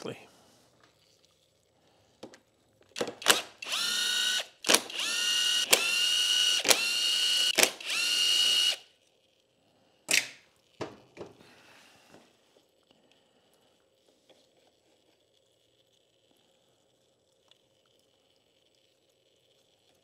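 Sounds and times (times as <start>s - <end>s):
cordless drill whining: 3.0s - 8.9s.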